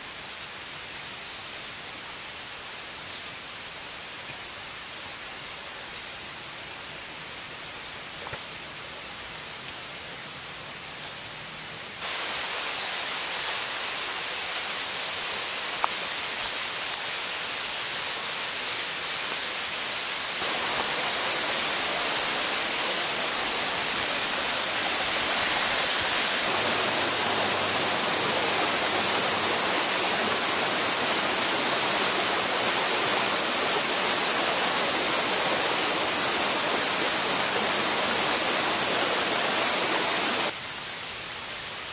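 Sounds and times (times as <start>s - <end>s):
water rushing: 12.0s - 40.6s.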